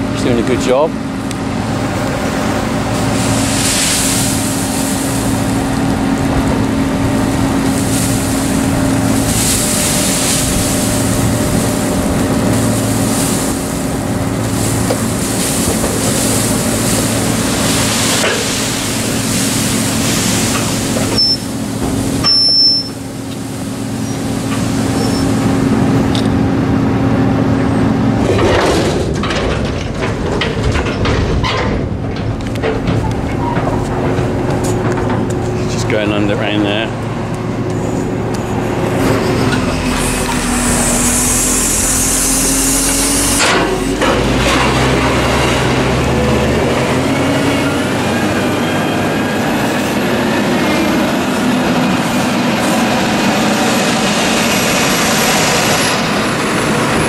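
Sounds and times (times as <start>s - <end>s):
tractor diesel engines running: 0.0s - 57.0s
short high beeps: 21.2s - 21.5s, 22.2s - 23.0s.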